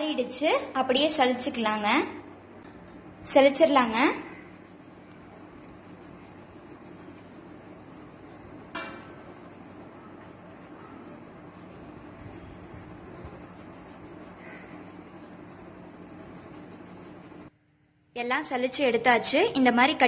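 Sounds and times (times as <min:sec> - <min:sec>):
flour rubbed through sieve: 0:03.3 - 0:17.5.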